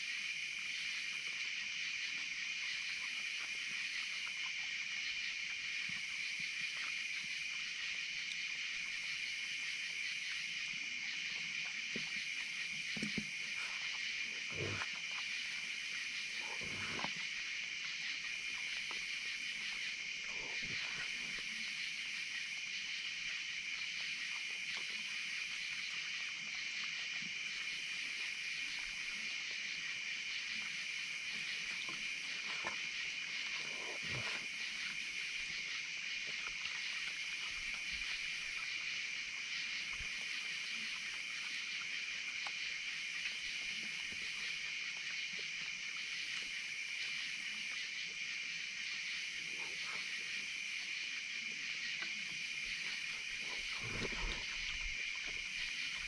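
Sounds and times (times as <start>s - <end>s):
night insects chorus: 0.0s - 56.0s
raccoons eating: 9.9s - 21.7s, 30.5s - 39.0s, 51.4s - 56.0s
short animal noises: 12.8s - 17.4s, 52.0s - 56.0s.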